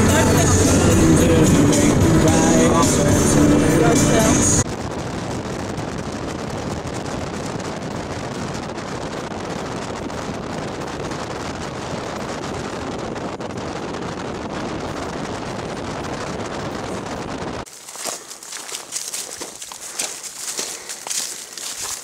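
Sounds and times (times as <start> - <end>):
tyre noise inside moving car: 0.0 - 13.7.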